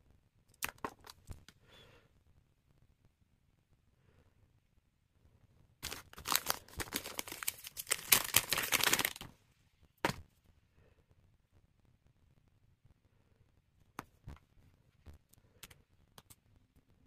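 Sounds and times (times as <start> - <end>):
plastic packaging crackling: 5.8 - 9.3.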